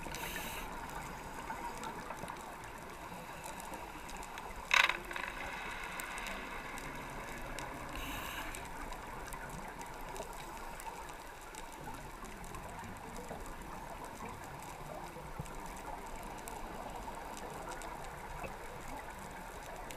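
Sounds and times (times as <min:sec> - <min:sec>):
scuba regulator breathing: 0:00.0 - 0:01.4, 0:07.9 - 0:08.7.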